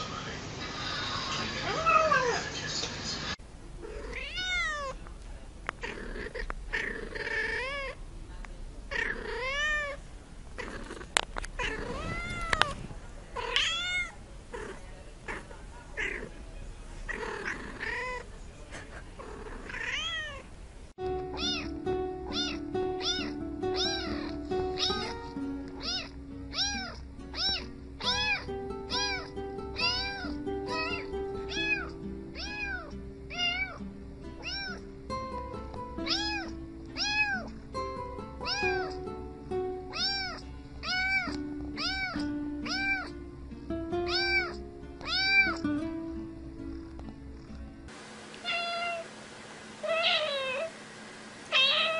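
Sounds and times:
cat meowing: 3.8 - 5.0, 5.8 - 8.0, 8.9 - 10.0, 11.6 - 12.8, 13.4 - 15.4, 17.1 - 18.2, 19.4 - 20.5, 21.3 - 33.8, 34.4 - 34.8, 36.0 - 37.5, 38.4 - 39.0, 39.9 - 43.2, 44.1 - 45.6, 48.4 - 49.1, 49.8 - 50.7, 51.5 - 51.9
kitten meowing: 3.9 - 5.0, 8.9 - 10.0, 11.6 - 12.8, 13.4 - 14.1, 19.7 - 20.4, 21.3 - 25.2, 25.8 - 33.8, 34.4 - 34.8, 36.0 - 37.5, 38.4 - 39.0, 39.9 - 43.2, 44.1 - 45.6, 48.4 - 49.1, 49.8 - 50.7, 51.5 - 51.9
music of held notes: 21.0 - 48.4.

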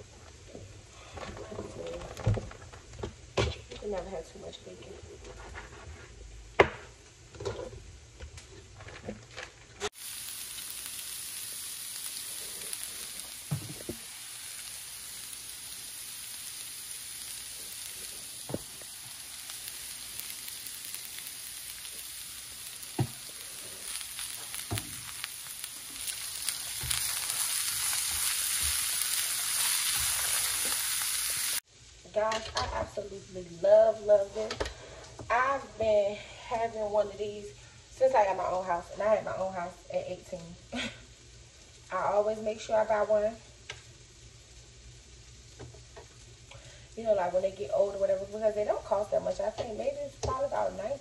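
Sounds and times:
vegetables sizzling in a skillet: 9.8 - 51.0.

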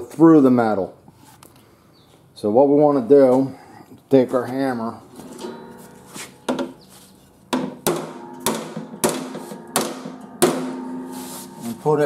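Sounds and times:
hammer striking sheet metal: 5.2 - 12.0.

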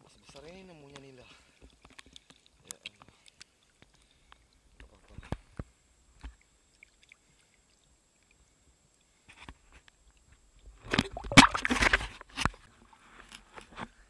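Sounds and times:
water splashing and churning: 10.7 - 12.1.

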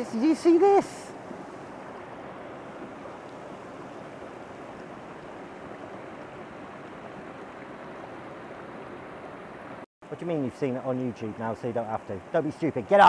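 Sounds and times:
river water rushing over boulders: 0.0 - 9.8.

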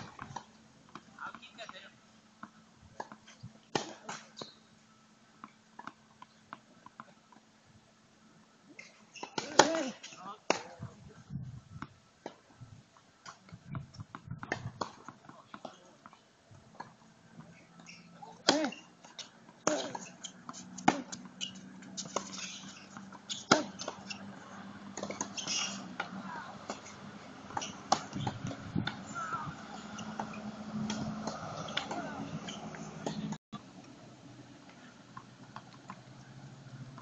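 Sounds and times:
tennis rackets striking ball: 2.4 - 4.6, 8.8 - 10.7, 14.1 - 33.4
faint voices: 29.0 - 30.2, 31.6 - 33.4.

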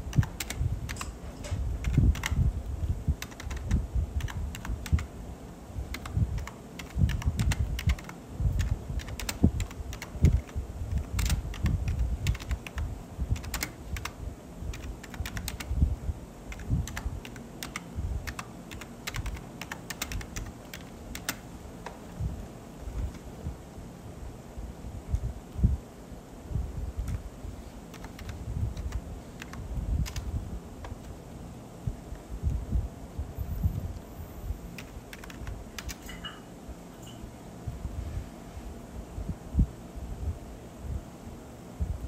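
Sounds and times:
irregular clicking and tapping: 16.6 - 22.2, 34.8 - 36.4.

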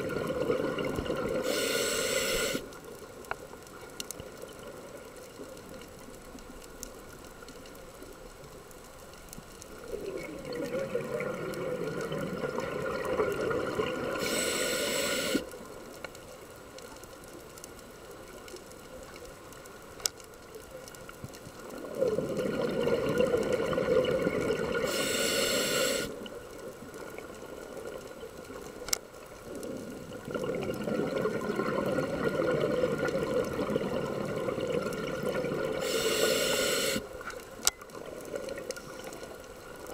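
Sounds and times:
faint clicks: 0.1 - 39.9
diver breathing through regulator: 1.4 - 2.7, 14.2 - 15.5, 24.8 - 26.2, 35.8 - 37.0.

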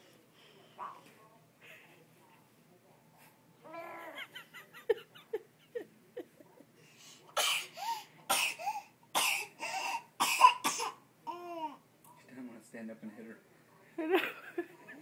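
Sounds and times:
baby cough-like bursts: 8.3 - 11.0.

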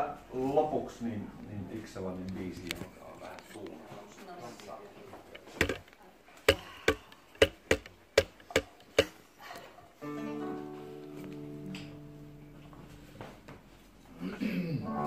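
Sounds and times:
sharp taps: 5.4 - 5.9, 6.5 - 9.2.

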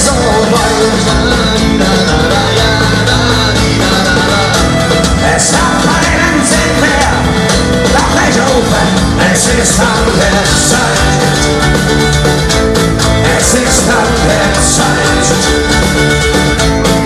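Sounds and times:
person singing: 0.0 - 11.9, 13.0 - 15.9
fiddle: 0.0 - 17.0
folk-rock band playing live: 0.0 - 17.0.

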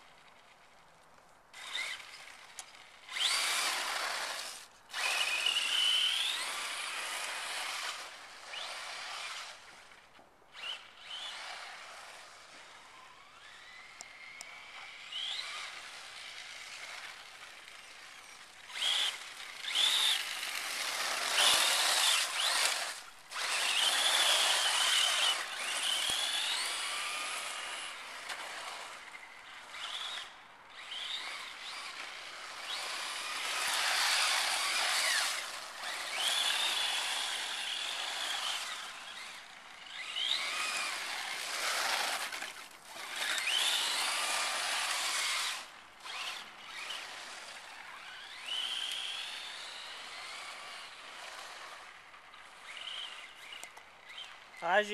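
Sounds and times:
electric motor whining: 3.1 - 9.7, 18.2 - 51.9.

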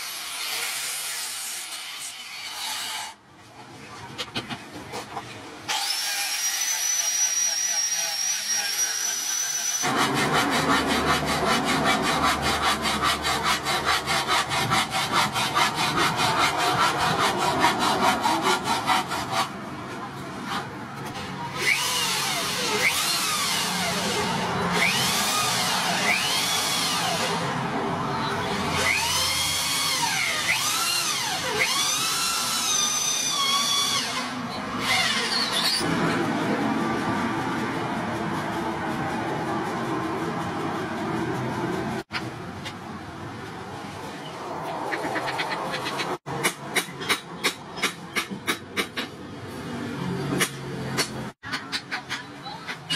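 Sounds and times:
angle grinder whining on steel: 21.5 - 27.6
electric drill boring into wood: 21.6 - 27.5, 28.8 - 35.8.

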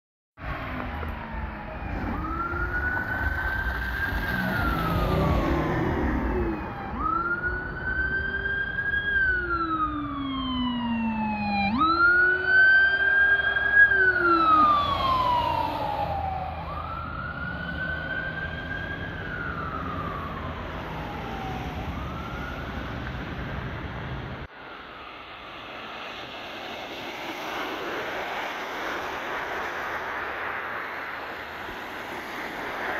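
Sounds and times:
low-frequency siren tone: 0.4 - 23.4
fire truck siren wailing: 0.4 - 32.9
traffic on slushy road: 0.4 - 32.9.

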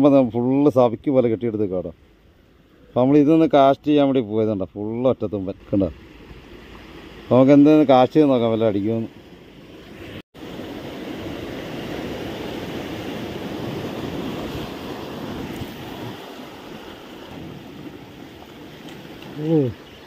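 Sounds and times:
sea waves washing: 5.7 - 20.0
wind on the microphone: 10.9 - 19.8.

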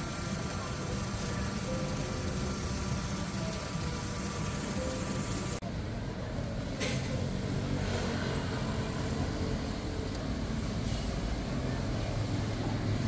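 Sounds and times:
traffic rumble: 0.0 - 13.0.

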